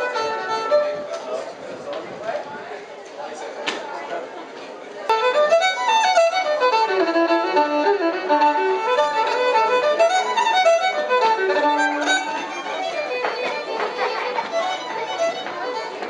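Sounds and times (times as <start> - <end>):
fiddle playing fast folk tune: 0.0 - 1.4, 5.1 - 16.0
guitar: 5.1 - 13.7.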